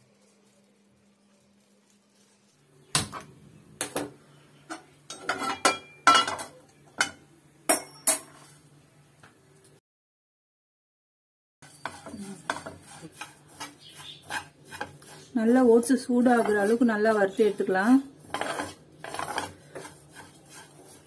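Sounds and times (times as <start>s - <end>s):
metal cookware clattering: 4.7s - 8.5s.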